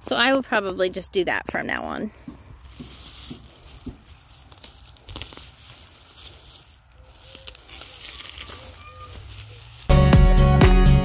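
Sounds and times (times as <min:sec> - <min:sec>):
grass and leaves rustling: 0:02.1 - 0:10.5.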